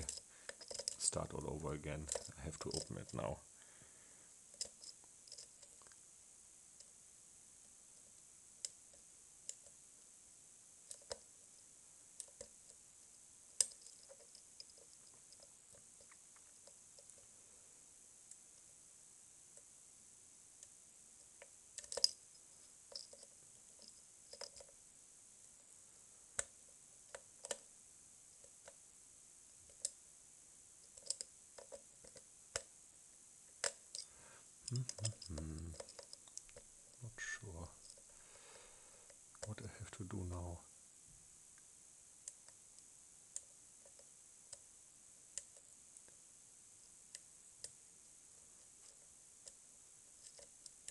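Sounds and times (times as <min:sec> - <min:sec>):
steady hiss: 0:00.0 - 0:50.9
lock pick metallic clicks: 0:21.8 - 0:22.2, 0:34.7 - 0:36.6.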